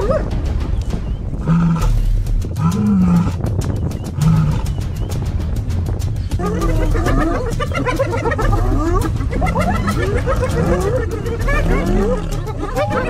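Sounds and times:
low rumble: 0.0 - 13.0
low animal calls: 1.4 - 5.0.

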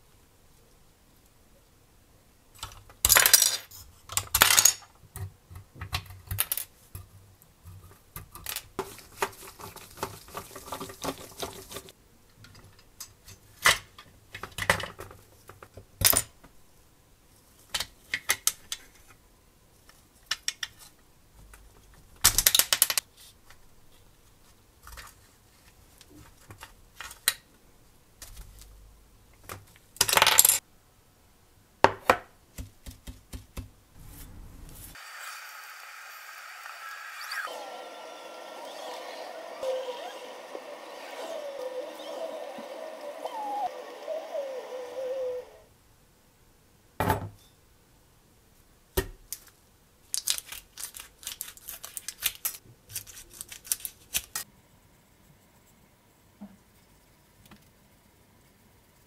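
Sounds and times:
small parts clinking: 30.0 - 30.6.

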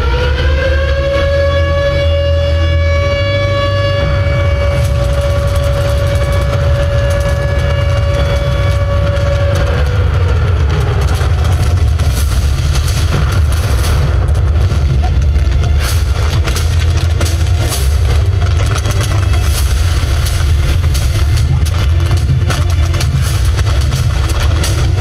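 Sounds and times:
air-raid siren wailing: 0.0 - 12.2
gunfire and explosions: 0.0 - 25.0
low drone of bomber engines: 0.0 - 25.0.

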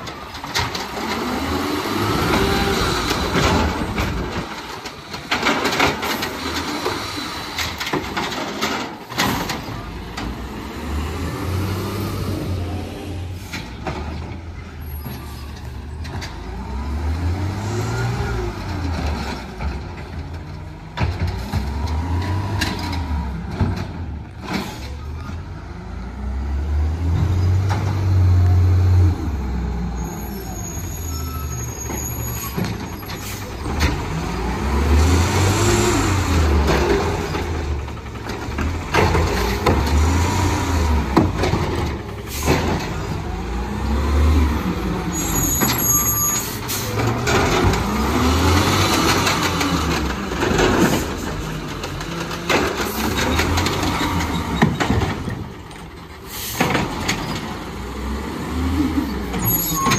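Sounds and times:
garbage truck engine revving: 0.0 - 59.9
air brake hisses: 56.3 - 56.6.

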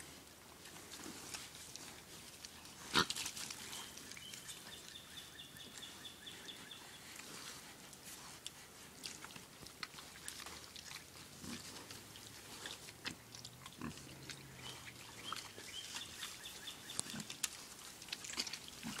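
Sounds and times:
animals clicking and rustling: 0.0 - 19.0
hogs grunting: 8.7 - 19.0.

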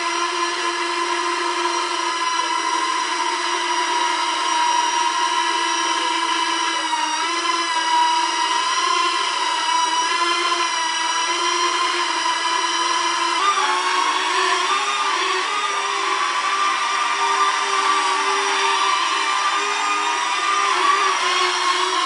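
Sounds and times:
toy drone propellers whining: 0.0 - 22.0.

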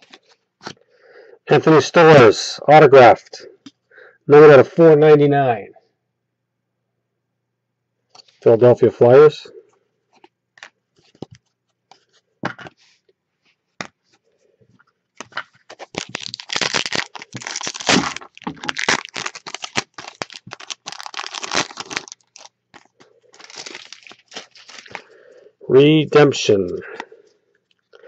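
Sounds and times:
foil pack tearing and crinkling: 15.2 - 25.1.

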